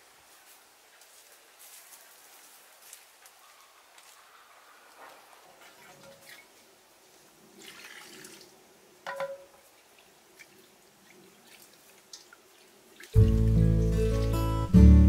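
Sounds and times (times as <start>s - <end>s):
water splashing and dripping: 5.6s - 6.7s, 7.5s - 14.8s.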